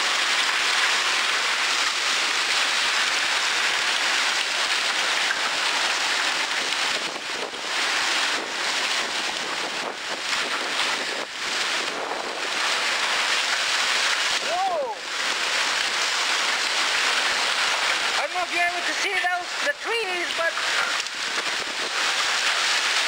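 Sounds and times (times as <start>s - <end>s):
heavy rain and hail: 0.0s - 23.0s
wind buffeting microphone: 4.8s - 18.2s, 20.5s - 22.6s.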